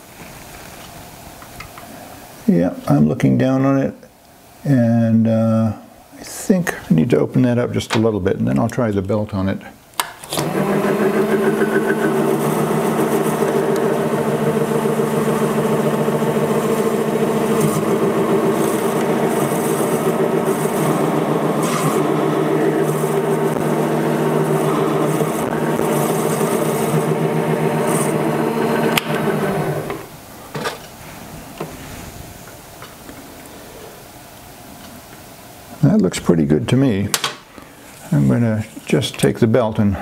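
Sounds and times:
lathe motor whine: 10.3s - 30.1s.

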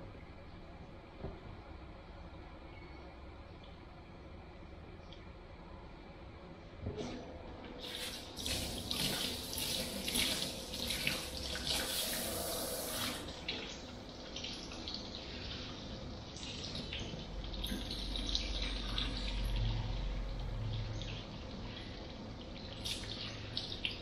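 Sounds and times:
shower water splashing on hair: 7.8s - 15.1s.

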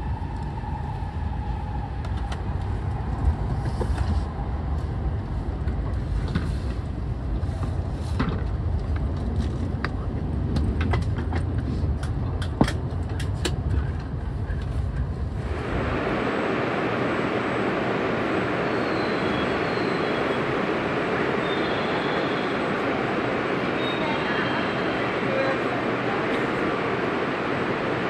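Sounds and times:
train cabin rumble: 0.0s - 28.0s
steady hiss on station platform: 14.1s - 28.0s.

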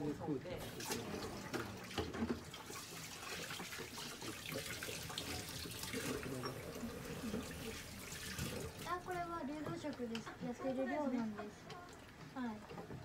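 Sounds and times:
running water splashing: 0.6s - 9.5s.

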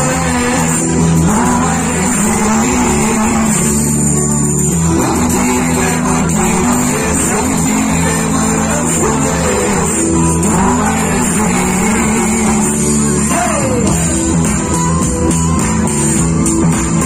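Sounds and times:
live band playing pop-rock: 0.0s - 17.0s.

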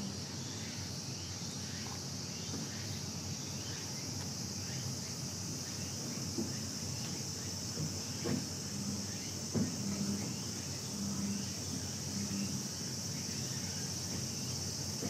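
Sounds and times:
insect chorus drone: 0.0s - 15.0s
faint short knocks: 6.3s - 8.6s, 9.5s - 10.4s.

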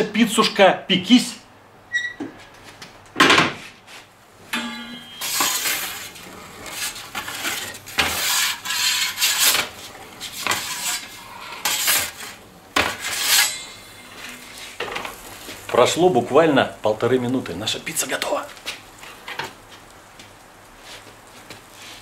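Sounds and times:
metal peel scraping and clattering: 4.5s - 16.0s.

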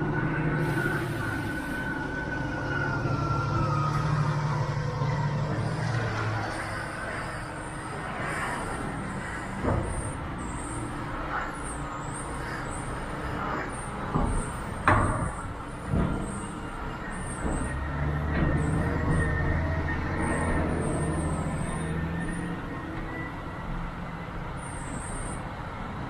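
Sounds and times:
truck engine rumble: 0.0s - 26.0s
sharp knocks and clunks: 14.1s - 16.4s.

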